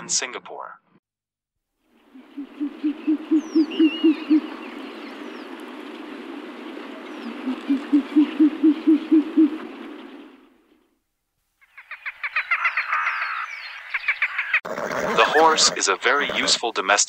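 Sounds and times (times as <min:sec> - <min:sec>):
outdoor ambience hiss: 0:01.8 - 0:11.8
owl hooting: 0:02.0 - 0:10.4.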